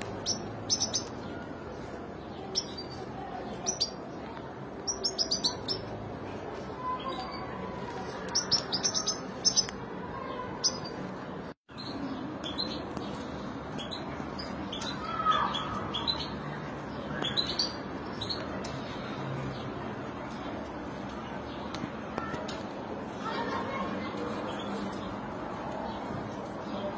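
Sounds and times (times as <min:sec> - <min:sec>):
finches chirping: 0:00.2 - 0:01.4.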